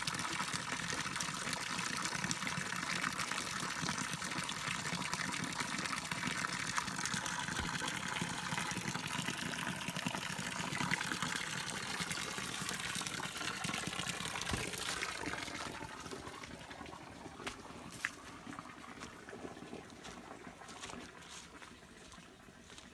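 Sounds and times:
stream trickling over stones: 0.0s - 22.9s
footsteps on dry leaves: 20.0s - 22.9s.

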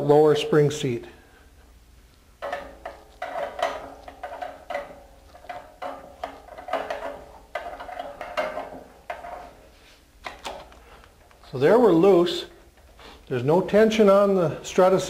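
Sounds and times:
spring compressor metal clinks: 2.4s - 13.0s.

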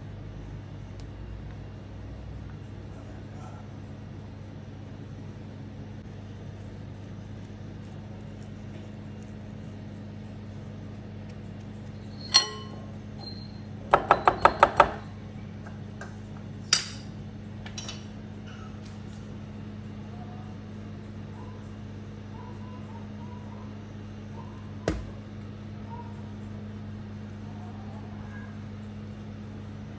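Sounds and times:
steady low hum: 0.0s - 29.9s
kitchenware clinking on glass: 12.1s - 12.9s.

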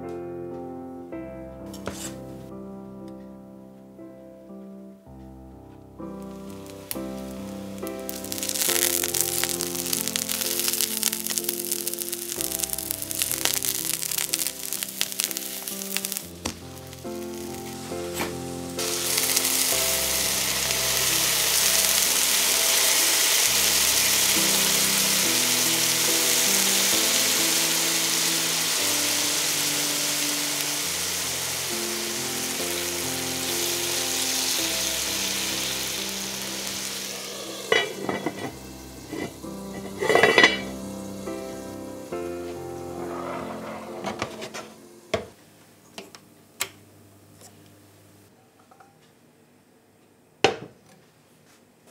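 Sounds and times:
loud steady sizzle: 6.0s - 45.2s
vegetables frying in oil: 6.3s - 43.1s
lid clinking on skillet: 37.6s - 40.8s.

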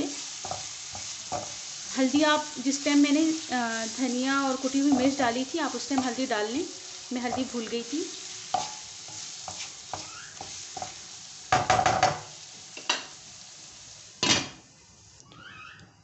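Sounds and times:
spatula scraping a wok: 0.0s - 2.6s, 7.0s - 13.2s
food sizzling in oil: 0.0s - 15.6s.

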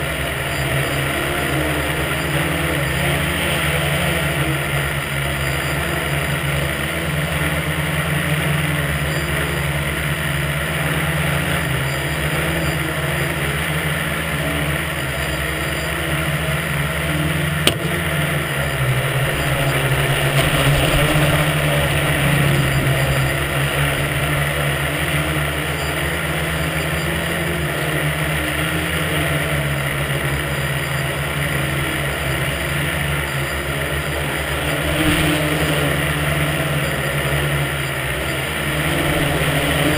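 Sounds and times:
drone motors buzzing: 0.0s - 39.9s
sharp click: 17.6s - 18.0s.

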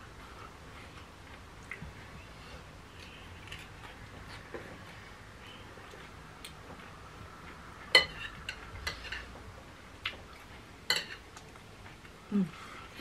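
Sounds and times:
cutlery clinking on plate: 8.0s - 9.3s.

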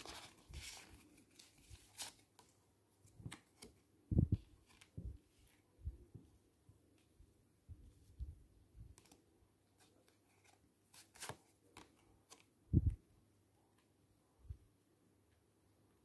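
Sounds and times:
cards shuffling: 10.0s - 12.5s.

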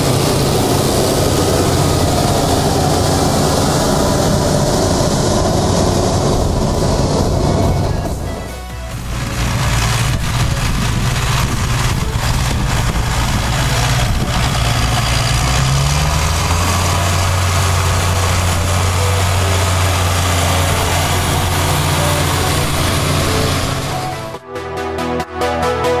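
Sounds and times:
tractor diesel engine running: 0.0s - 24.4s
electronic music: 6.0s - 10.9s, 18.1s - 26.0s.

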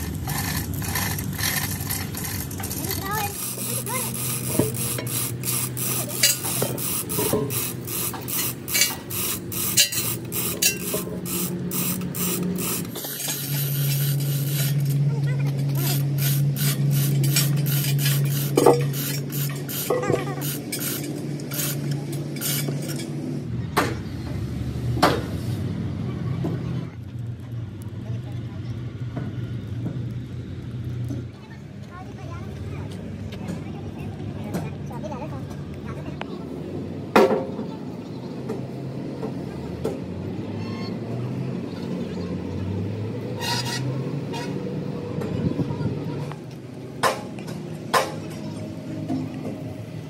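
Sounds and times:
hand tool scraping metal: 0.0s - 15.0s, 15.7s - 23.2s, 43.4s - 44.6s
steady machine hum: 0.0s - 23.5s.

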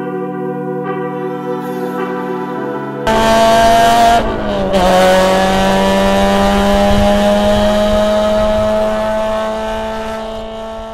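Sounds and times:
car engine accelerating hard: 3.1s - 10.9s.

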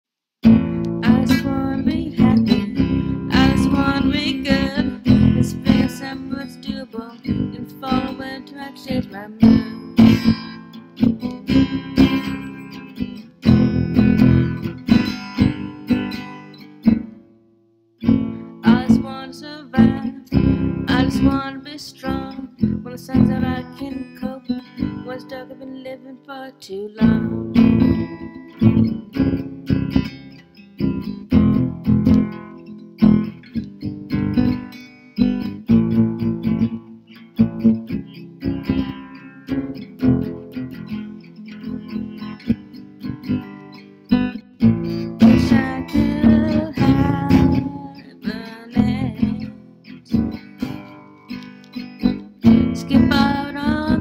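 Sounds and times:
acoustic guitar strumming: 0.4s - 54.0s.

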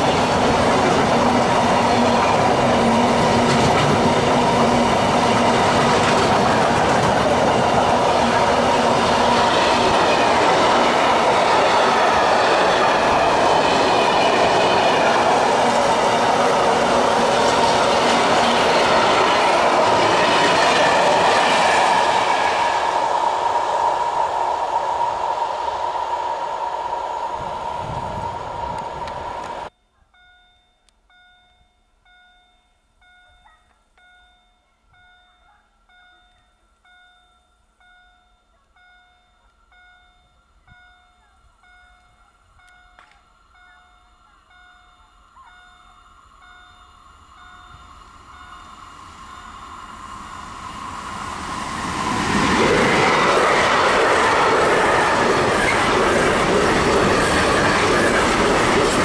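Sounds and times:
freight train rolling past: 0.0s - 29.7s, 42.6s - 59.0s
steady whining tone: 0.0s - 29.7s.

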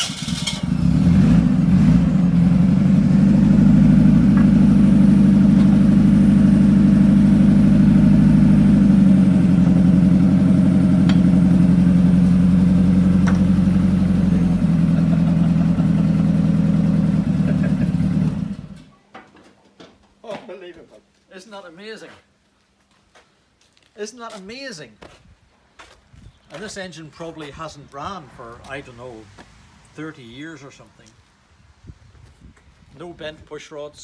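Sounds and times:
forklift engine running: 0.0s - 18.9s.

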